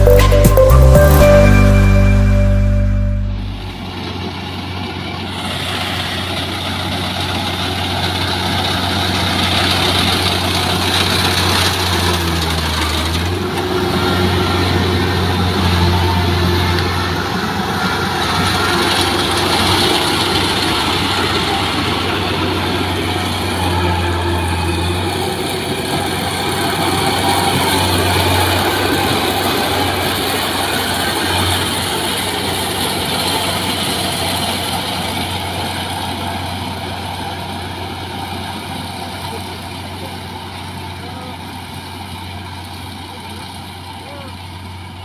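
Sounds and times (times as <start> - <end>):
combine harvester engine drone: 0.0 - 45.0.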